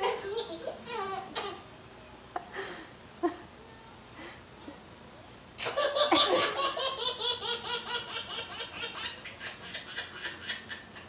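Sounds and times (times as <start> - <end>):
baby laughing: 5.6 - 11.0.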